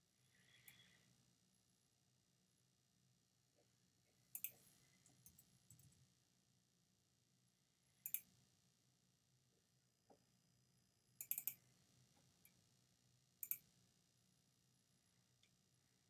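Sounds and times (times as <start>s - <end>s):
computer mouse double-clicks: 4.4s - 4.6s, 8.0s - 8.3s, 11.2s - 11.6s, 13.4s - 13.6s.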